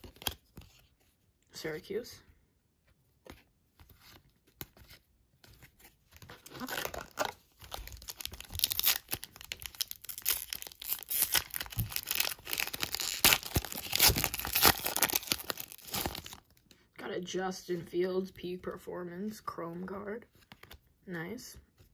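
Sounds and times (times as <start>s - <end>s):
foil wrapper crinkling and tearing: 6.2s - 16.6s.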